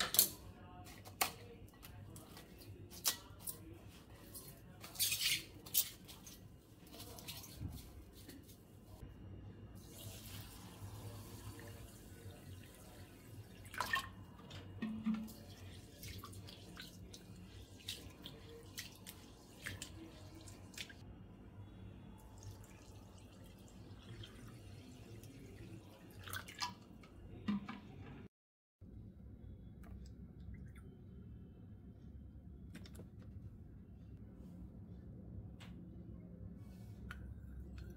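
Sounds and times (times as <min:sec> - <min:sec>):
water running into bowl: 0:09.8 - 0:21.0, 0:22.4 - 0:26.8.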